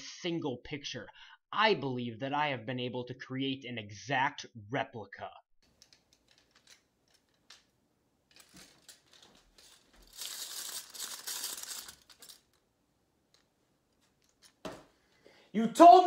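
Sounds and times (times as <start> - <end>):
crinkling rustling hiss: 8.3 - 12.6.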